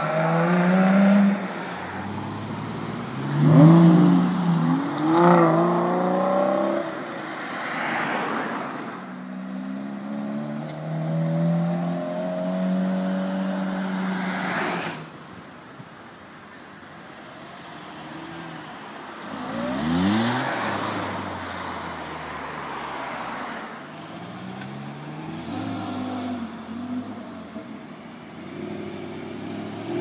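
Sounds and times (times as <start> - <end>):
sports car accelerating hard: 0.0 - 8.3, 9.2 - 14.8, 19.3 - 22.0, 23.9 - 27.4.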